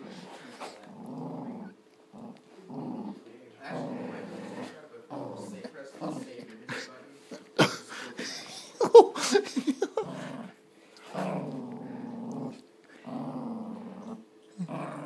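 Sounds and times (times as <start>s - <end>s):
small dog growling: 0.0s - 6.5s, 10.0s - 15.0s.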